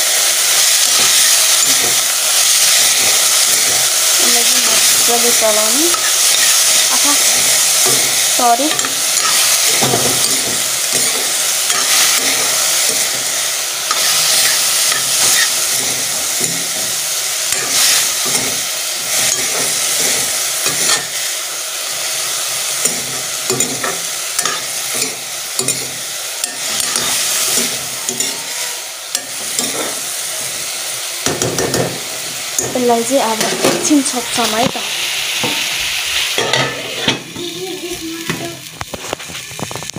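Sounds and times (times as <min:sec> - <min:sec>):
ferns sizzling in hot oil: 0:00.0 - 0:39.9
metal spatula scraping pan: 0:00.9 - 0:21.3, 0:23.6 - 0:25.8, 0:26.4 - 0:30.0, 0:36.3 - 0:37.3.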